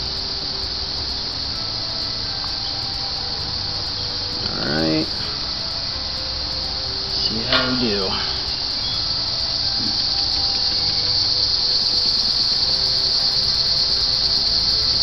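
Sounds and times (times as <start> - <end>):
insect chorus: 0.0 - 15.0
rising and falling call: 0.0 - 15.0.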